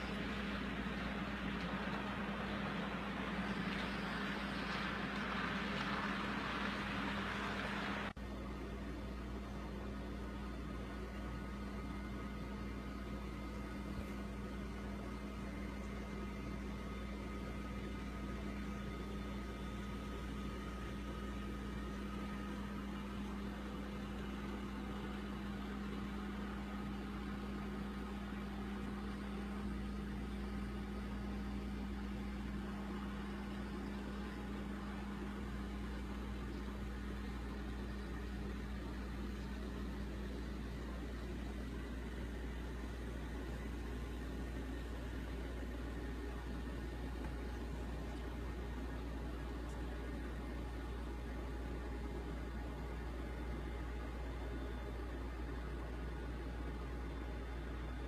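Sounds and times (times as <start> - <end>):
model train running on track: 0.0 - 8.1.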